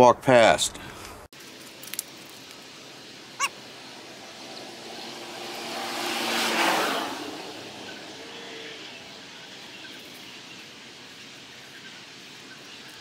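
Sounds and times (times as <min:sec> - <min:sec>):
faint outdoor background: 0:00.0 - 0:13.0
vehicle passing: 0:02.9 - 0:12.2.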